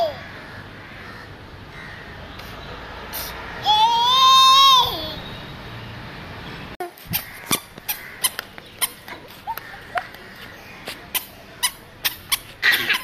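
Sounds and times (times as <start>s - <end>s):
squeaky shoes squeaking: 6.9s - 13.0s.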